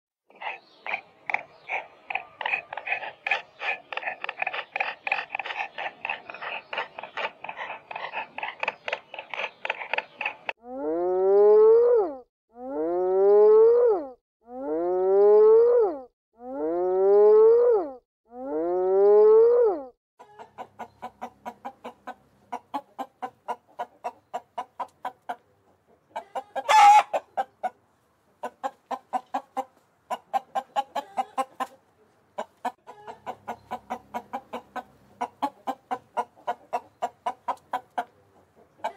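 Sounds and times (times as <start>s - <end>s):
animal calling: 0.3s - 19.7s.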